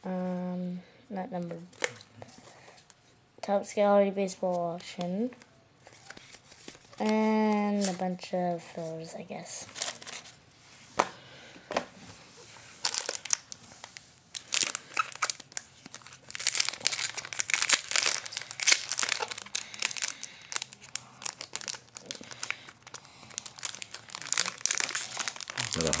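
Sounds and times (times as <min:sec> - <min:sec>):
foil wrapper crinkling: 0:09.7 - 0:10.3, 0:12.8 - 0:26.0.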